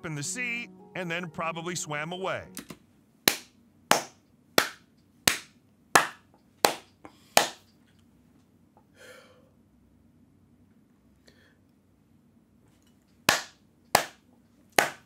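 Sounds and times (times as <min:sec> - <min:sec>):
slow hand claps: 0:03.3 - 0:07.7, 0:13.3 - 0:14.2, 0:14.8 - 0:15.0.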